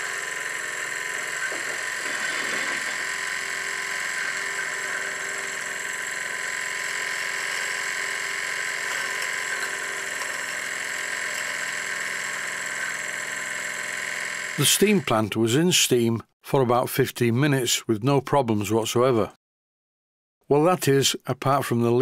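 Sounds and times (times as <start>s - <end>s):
small steam engine running: 0.0s - 15.2s.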